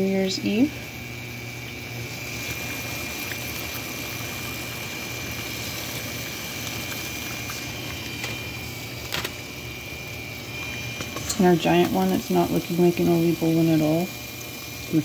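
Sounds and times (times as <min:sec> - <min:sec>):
hot oil sizzling and bubbling: 0:00.0 - 0:15.0.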